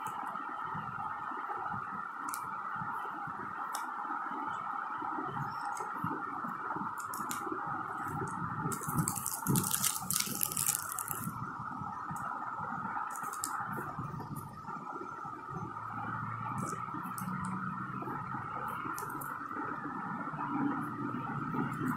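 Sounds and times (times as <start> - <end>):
plastic packaging crinkling: 7.0 - 7.4, 8.0 - 11.3, 13.1 - 13.6.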